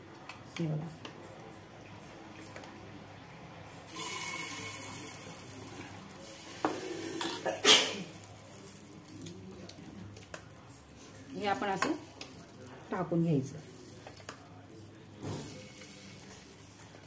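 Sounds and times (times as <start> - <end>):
batter sizzling in hot oil: 3.9 - 17.0.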